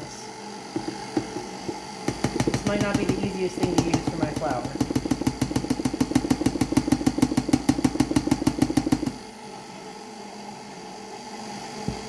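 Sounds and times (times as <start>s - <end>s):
mixer motor hum: 0.0s - 12.0s
mixer dough hook knocking: 0.7s - 9.2s.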